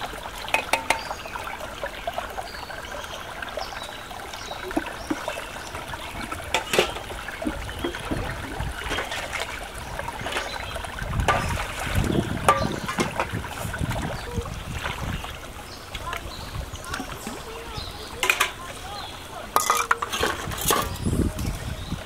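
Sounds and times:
stream trickling over stones: 0:00.0 - 0:22.0
water splashing: 0:00.0 - 0:22.0
metal dishes knocking: 0:00.5 - 0:01.1, 0:06.5 - 0:07.1, 0:12.4 - 0:13.4, 0:18.2 - 0:18.6, 0:19.6 - 0:21.0.

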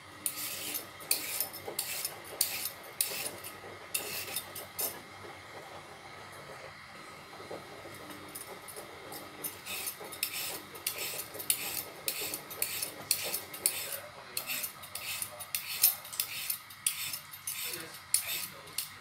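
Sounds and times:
peeler scraping radish skin: 0:00.2 - 0:04.5, 0:09.5 - 0:19.0.

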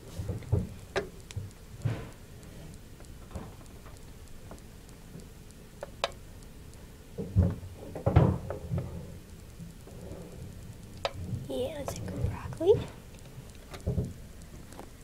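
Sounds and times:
hamster nibbling: 0:10.5 - 0:13.8.

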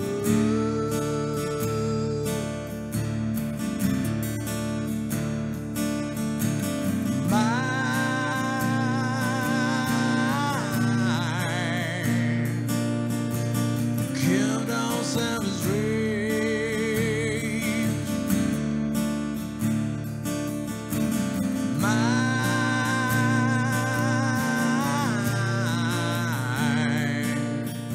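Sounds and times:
man singing with vibrato: 0:00.0 - 0:03.2, 0:06.4 - 0:18.7, 0:21.3 - 0:27.9
strummed acoustic guitar: 0:00.0 - 0:27.9.

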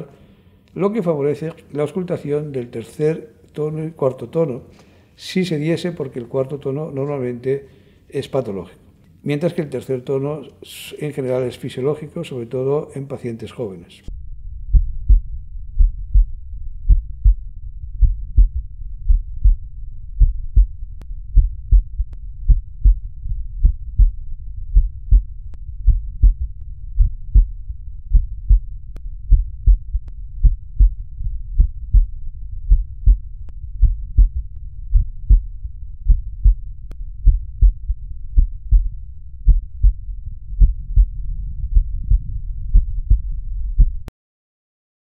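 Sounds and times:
heartbeat through stethoscope: 0:14.6 - 0:44.1.

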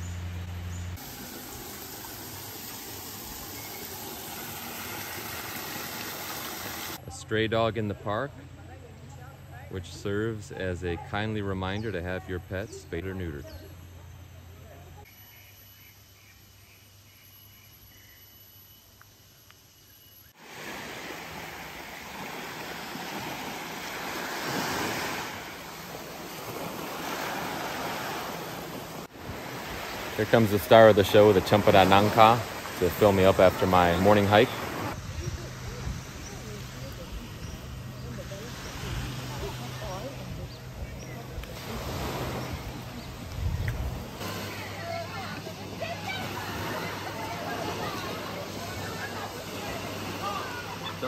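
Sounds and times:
stream rushing hiss: 0:00.0 - 0:07.0, 0:20.4 - 0:51.0
small waves washing onto sand: 0:01.0 - 0:07.0, 0:20.4 - 0:51.0
faint high whine: 0:13.3 - 0:20.4
wind on microphone: 0:34.7 - 0:37.9, 0:40.2 - 0:44.2.

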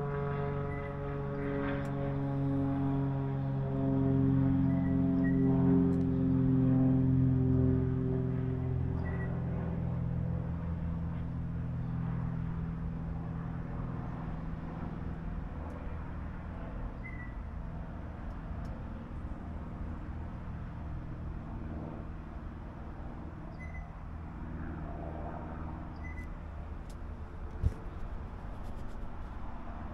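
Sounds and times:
outdoor background noise: 0:00.0 - 0:29.9
vehicle engine hum: 0:25.6 - 0:29.9.

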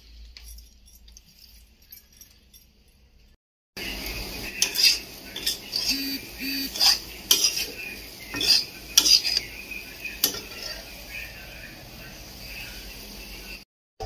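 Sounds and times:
potatoes frying in oil: 0:03.8 - 0:13.6
spatula scraping metal pan: 0:04.5 - 0:11.0.

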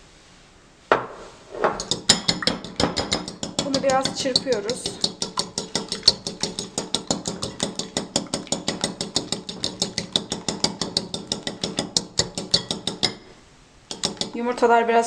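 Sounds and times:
fork whisking in a ceramic bowl: 0:01.8 - 0:13.3, 0:13.9 - 0:14.4.

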